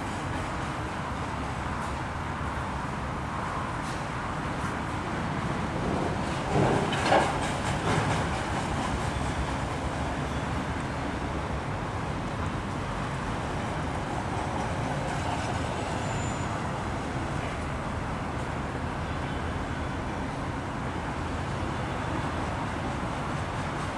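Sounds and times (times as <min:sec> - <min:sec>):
train wheels rumbling on rail: 0:00.0 - 0:19.0, 0:19.6 - 0:23.9
train wheel clacks: 0:05.8 - 0:10.2, 0:23.0 - 0:23.9.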